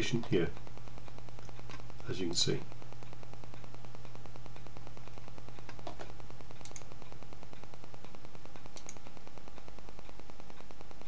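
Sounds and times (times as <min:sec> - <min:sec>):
low electrical hum and hiss: 0:00.0 - 0:11.0
computer mouse clicks: 0:03.5 - 0:10.7.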